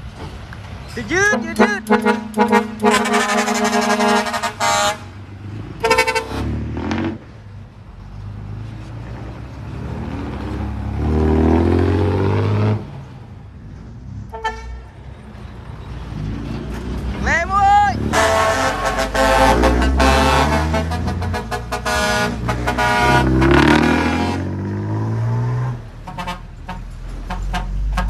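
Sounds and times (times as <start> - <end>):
truck engine running: 0.0 - 6.4
truck air horn blasts: 1.2 - 5.1, 5.8 - 6.5, 14.3 - 15.0, 18.1 - 24.5, 26.0 - 28.0.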